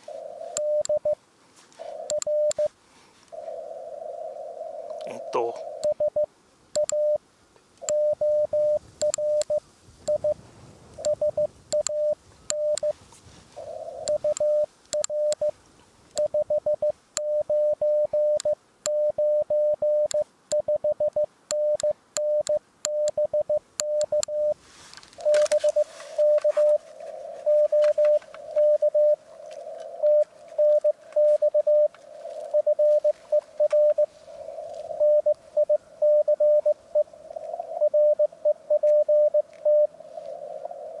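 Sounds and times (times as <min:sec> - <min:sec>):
morse code tone: 0:00.5 - 0:01.2, 0:02.0 - 0:02.7, 0:05.8 - 0:07.2, 0:07.8 - 0:10.4, 0:11.0 - 0:13.0, 0:14.0 - 0:15.5, 0:16.2 - 0:24.6, 0:25.2 - 0:26.8, 0:27.4 - 0:29.2, 0:30.0 - 0:34.1, 0:35.0 - 0:36.8, 0:37.8 - 0:39.9
sharp clicks: 0:14.0 - 0:15.5, 0:20.0 - 0:24.4
rush of radio noise: 0:25.2 - 0:37.1.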